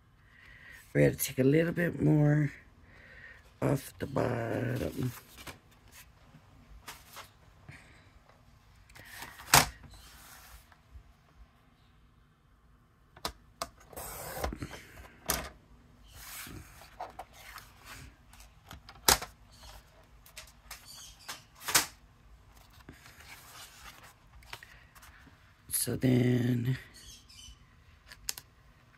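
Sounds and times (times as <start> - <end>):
card stock rustling and sliding: 16.0 - 21.9, 22.5 - 25.3.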